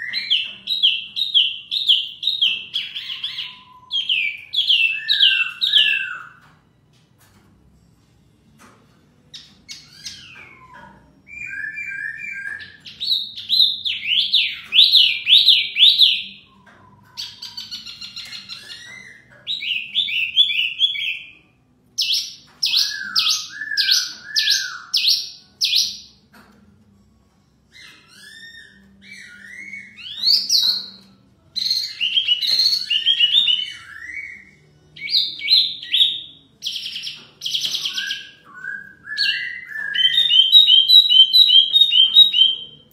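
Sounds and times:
songbird whistling trills: 0.0 - 6.5, 9.4 - 26.2, 27.7 - 42.9.

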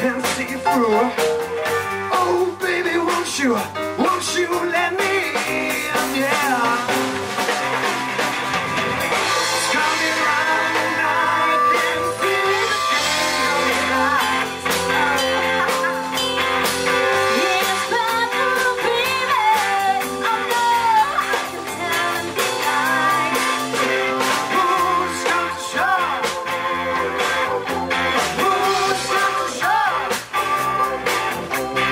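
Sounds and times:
bass guitar: 0.0 - 31.9
drum kit: 0.0 - 31.9
electric guitar: 0.0 - 31.9
electric keyboard: 0.0 - 31.9
woman singing: 9.7 - 16.0, 17.2 - 26.2, 28.2 - 30.7.

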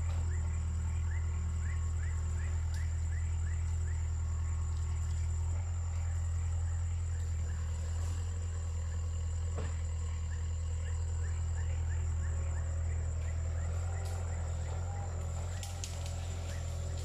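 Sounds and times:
excavator diesel engine hum: 0.0 - 17.0.

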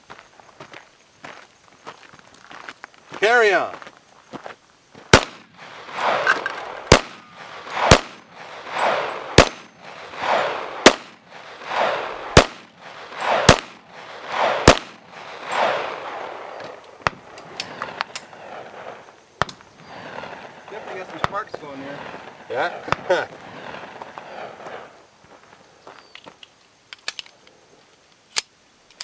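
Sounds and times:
light cracks: 5.2 - 25.0
handgun shots: 6.0 - 8.2, 8.8 - 9.7, 10.8 - 11.2, 11.8 - 13.8, 14.4 - 15.0.

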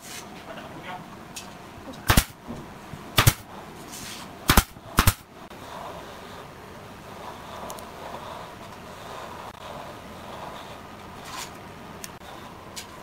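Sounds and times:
nail gun firing into wood: 2.1 - 2.4, 3.2 - 3.5, 4.5 - 5.2.

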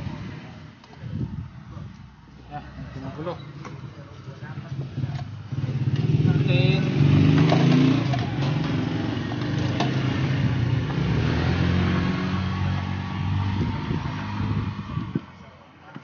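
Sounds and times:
engine humming: 0.0 - 15.6.

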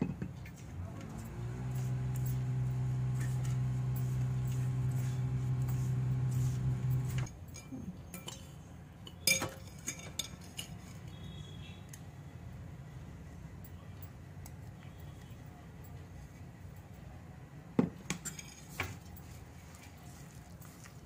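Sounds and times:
steady low hum: 0.8 - 7.3.

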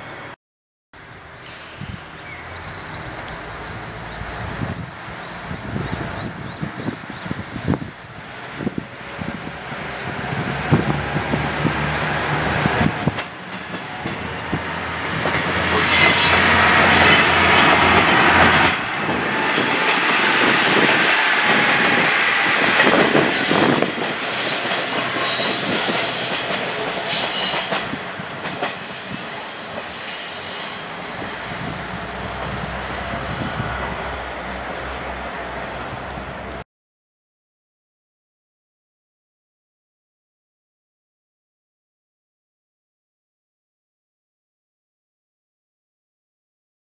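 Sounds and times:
diesel railcar engine: 1.0 - 36.6
train wheels squealing: 15.7 - 17.8, 23.4 - 32.3.

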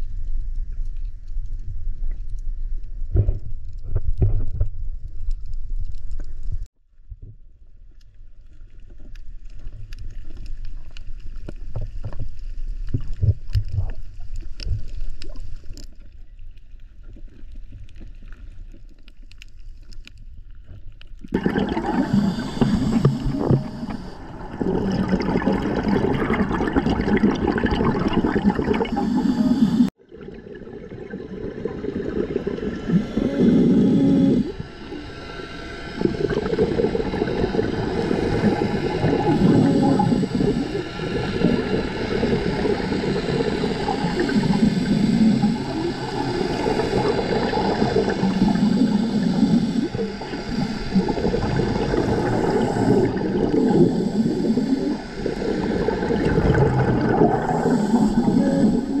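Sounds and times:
exhaled bubbles surging: 21.2 - 59.0
scuba regulator breathing underwater: 21.3 - 59.0.

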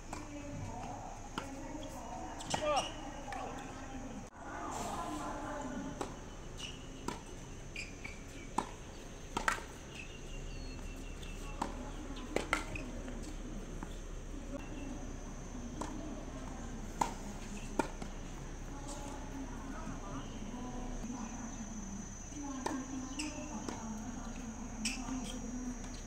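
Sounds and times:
distant crowd murmur: 0.0 - 26.0
ball bouncing: 0.1 - 3.7, 5.9 - 10.0, 10.7 - 13.9, 15.6 - 20.1
rackets striking tennis ball: 0.1 - 3.7, 5.9 - 13.9, 15.6 - 20.0.

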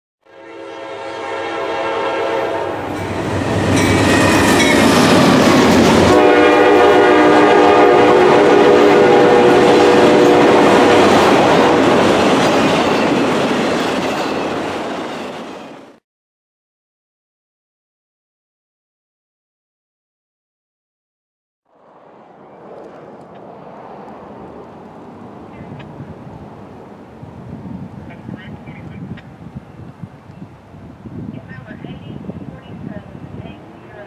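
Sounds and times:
locomotive air horn blasts: 0.2 - 4.7, 5.9 - 11.4
freight cars rumbling on rails: 2.4 - 16.0, 21.7 - 34.0.

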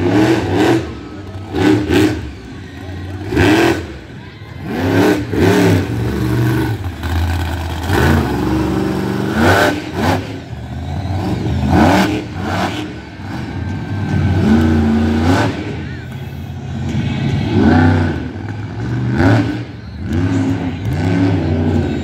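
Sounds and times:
truck engine revving hard: 0.0 - 16.0, 16.8 - 22.0.

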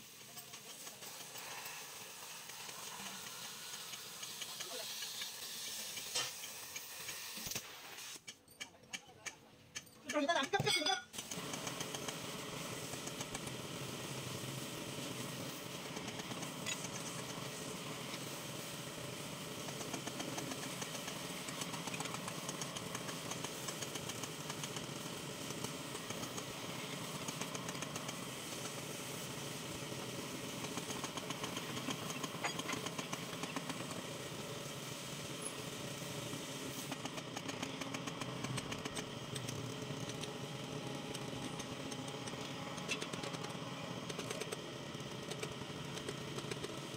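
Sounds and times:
drill press cutting steel: 29.7 - 34.1.

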